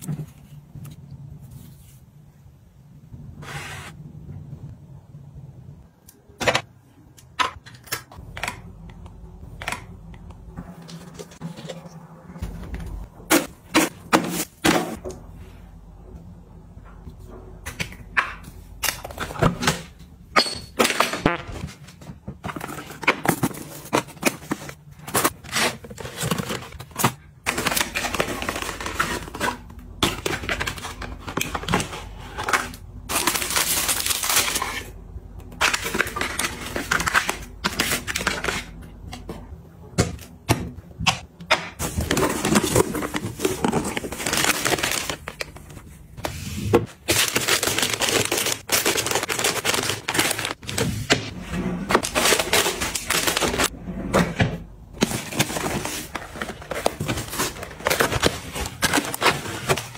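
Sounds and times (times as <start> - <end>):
packaging crinkling and rustling: 22.4 - 38.8, 41.8 - 51.2, 51.9 - 53.7, 55.0 - 59.9.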